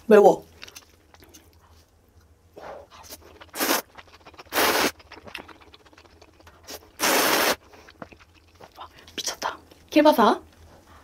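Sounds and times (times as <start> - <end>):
soft slurp: 2.6 - 9.4
hissing rushes of air at mouth: 3.6 - 3.8, 4.5 - 5.0, 6.7 - 7.6.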